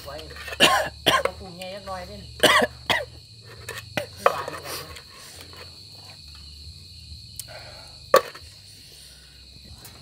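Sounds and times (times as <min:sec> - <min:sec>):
crickets chirping: 0:00.0 - 0:10.0.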